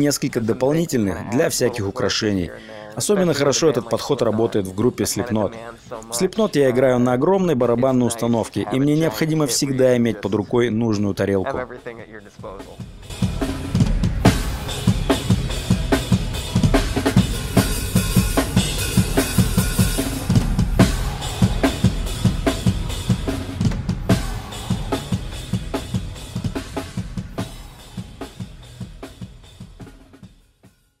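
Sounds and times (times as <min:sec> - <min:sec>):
fast heavy metal drumming: 0:11.5 - 0:30.4.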